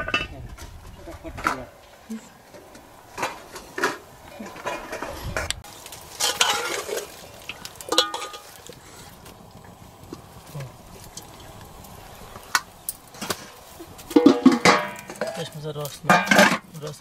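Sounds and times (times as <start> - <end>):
ladle scraping metal pot: 6.0 - 9.3, 12.4 - 16.8.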